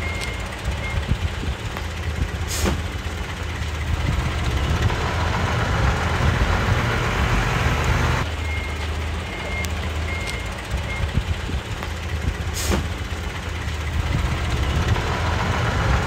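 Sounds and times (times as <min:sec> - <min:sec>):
diesel engine running: 0:00.0 - 0:16.0
short hiss: 0:02.5 - 0:02.8, 0:12.6 - 0:12.9.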